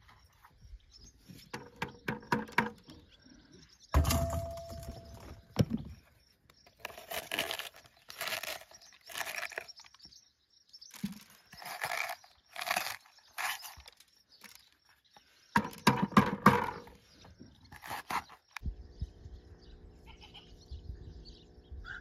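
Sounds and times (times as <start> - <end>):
corer crunching peppers: 4.0 - 15.8, 17.5 - 18.7.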